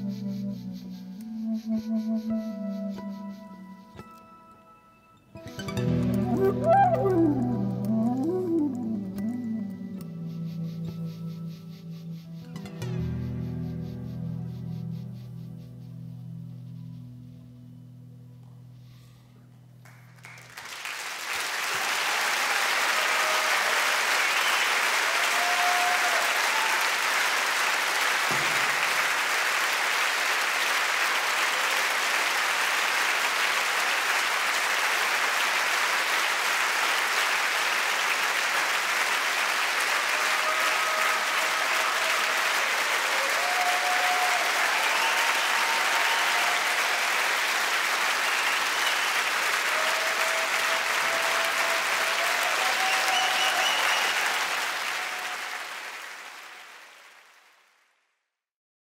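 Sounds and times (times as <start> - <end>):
audience applauding: 5.5 - 9.7, 19.8 - 57.9.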